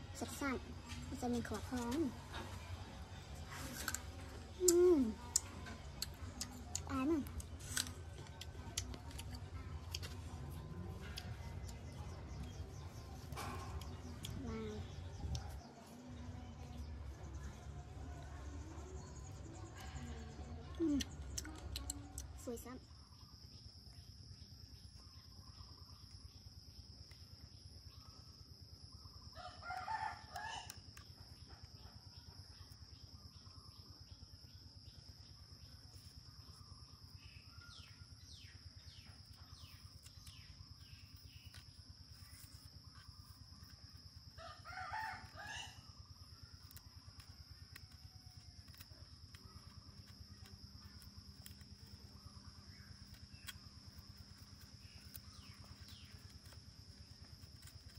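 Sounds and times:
rooster crowing: 0:29.4 - 0:30.8, 0:44.4 - 0:45.9.

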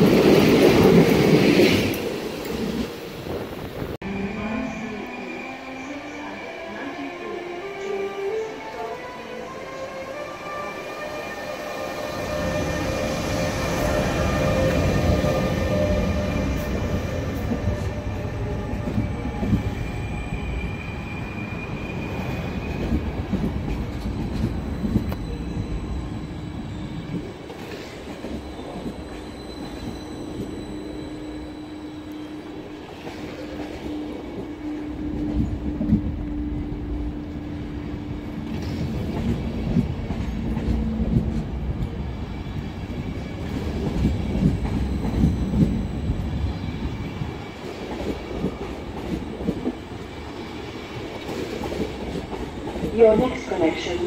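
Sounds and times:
train rumbling on rails: 0:00.0 - 0:54.0
high wheel squeal: 0:27.7 - 0:34.8.

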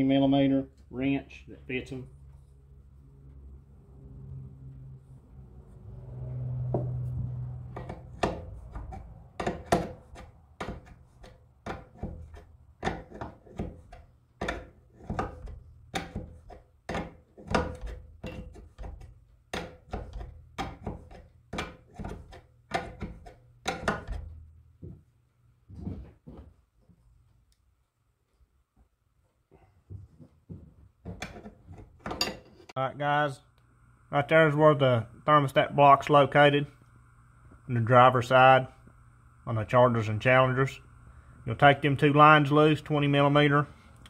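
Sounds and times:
low hum: 0:00.7 - 0:09.4, 0:33.4 - 0:44.0.

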